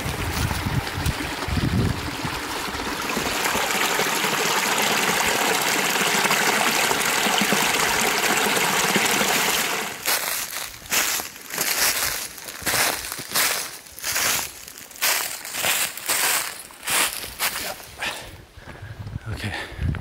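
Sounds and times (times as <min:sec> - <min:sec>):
wind rumble on microphone: 0:00.0 - 0:02.8, 0:18.6 - 0:20.0
stream splashing over rocks: 0:00.0 - 0:12.0.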